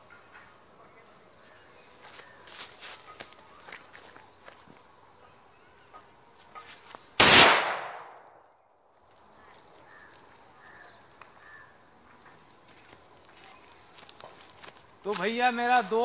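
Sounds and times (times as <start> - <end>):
firework rocket bang: 7.2 - 8.3.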